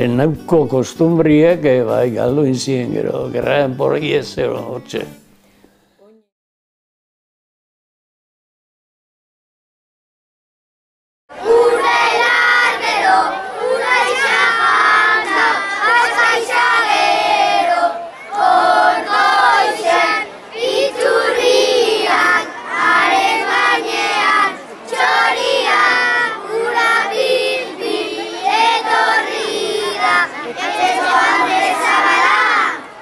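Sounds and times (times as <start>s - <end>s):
children singing in unison: 11.3s - 32.9s.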